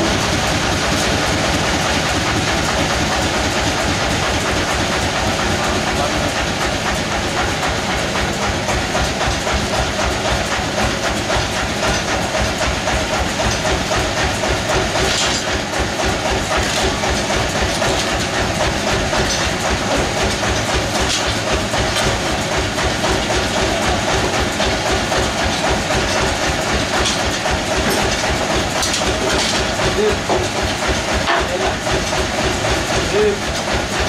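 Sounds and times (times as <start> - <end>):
sawmill machinery clatter: 0.0 - 34.0.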